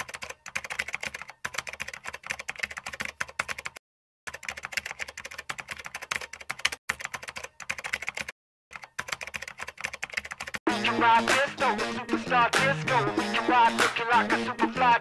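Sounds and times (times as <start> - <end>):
typing on computer keyboard: 0.0 - 10.6.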